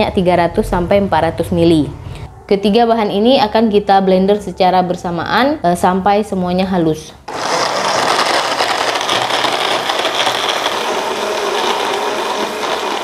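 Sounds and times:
electric blender running: 7.3s - 13.0s.

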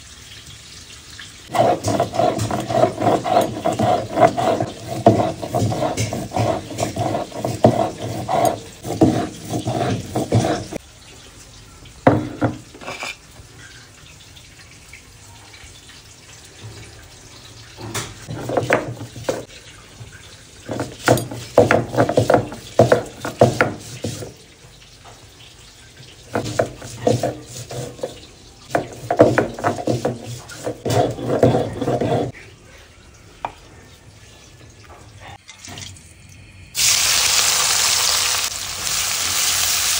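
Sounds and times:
stone roller grinding on slab: 1.5s - 10.8s, 18.3s - 19.5s, 20.7s - 24.3s, 26.3s - 32.4s.

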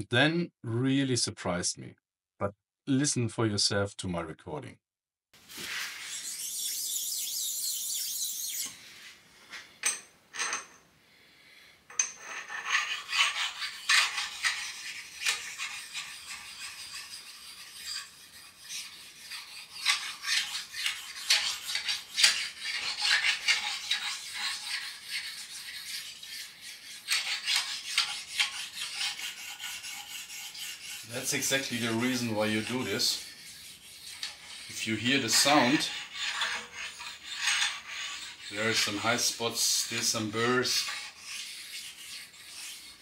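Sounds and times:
short hiss: 5.4s - 6.3s
stone rasping on steel rail: 11.9s - 43.0s.

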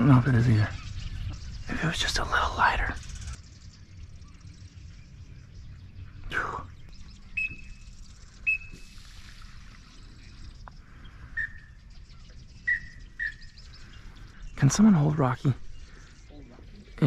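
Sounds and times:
breeze rumble on microphone: 0.0s - 17.0s
short whistled bird chirps: 7.3s - 10.4s, 11.3s - 11.8s, 12.4s - 13.6s.

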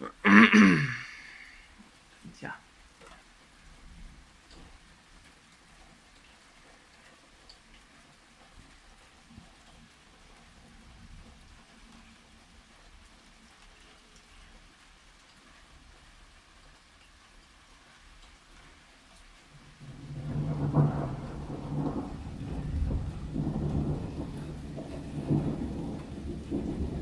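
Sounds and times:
light rain hissing: 0.0s - 27.0s
rolling thunder: 19.8s - 27.0s.

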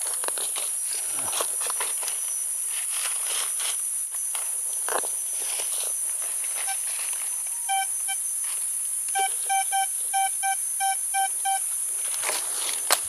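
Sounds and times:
metal detector beeps: 6.6s - 8.4s, 9.1s - 11.7s.

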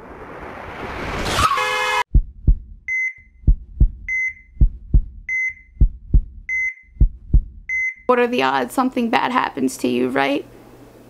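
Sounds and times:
rising rush of noise: 0.0s - 1.5s
heartbeat sound effect: 2.1s - 8.1s
heart monitor beep: 2.2s - 8.1s.

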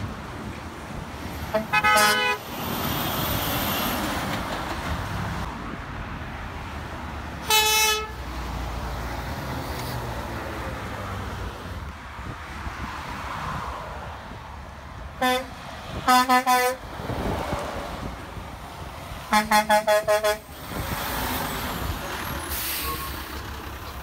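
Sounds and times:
passing road traffic: 0.0s - 24.0s
vehicle horn honks: 1.5s - 2.4s, 7.4s - 8.2s, 16.1s - 16.8s, 19.3s - 20.4s.

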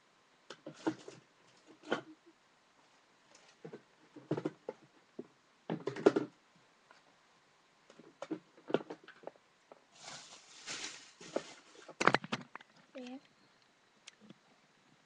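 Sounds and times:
knocks and handling rustle: 7.9s - 13.2s.

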